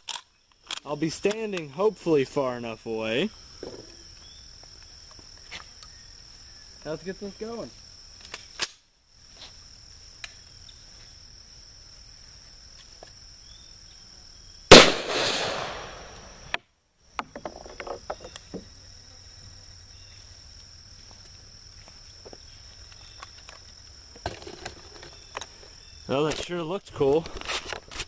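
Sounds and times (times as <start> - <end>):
insects chirring: 0.0 - 28.0
rifle shot: 14.7 - 16.5.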